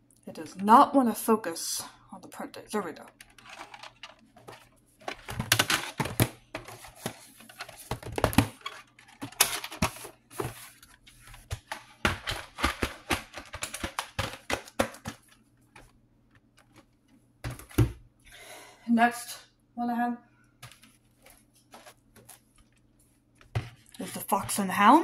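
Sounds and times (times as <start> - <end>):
plastic cassette cases clattering: 3.1 - 16.9.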